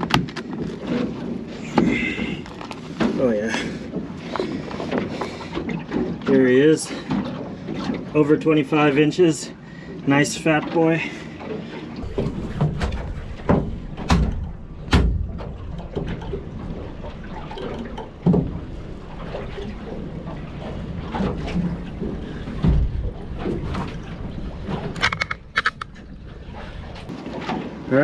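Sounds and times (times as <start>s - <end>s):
low rumble of boat and water: 0.0s - 28.0s
fish thumping on boat deck: 12.0s - 26.0s.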